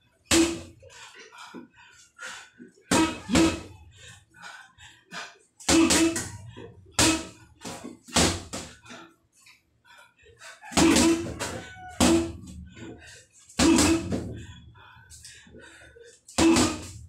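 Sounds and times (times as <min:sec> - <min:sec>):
boxing gloves hitting heavy bag: 0:00.3 - 0:00.8, 0:02.9 - 0:03.7, 0:05.7 - 0:06.4, 0:07.0 - 0:08.8, 0:10.8 - 0:12.6, 0:13.6 - 0:14.4, 0:16.4 - 0:17.0.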